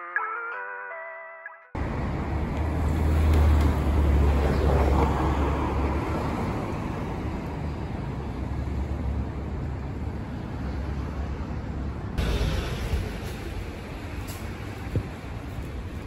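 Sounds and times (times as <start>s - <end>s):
vehicle traffic rumble: 1.8s - 16.0s.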